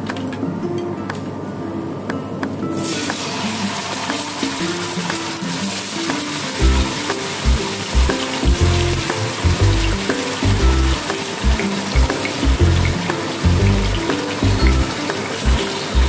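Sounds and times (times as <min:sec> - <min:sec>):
pork chops sizzling in oil: 0:02.8 - 0:16.0
background music with low beat: 0:06.1 - 0:16.0.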